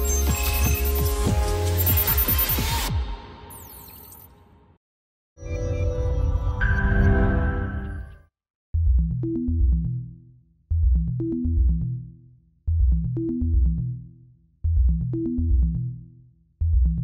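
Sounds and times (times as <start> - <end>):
bass-heavy electronic music: 0.0 - 3.8, 8.8 - 17.0.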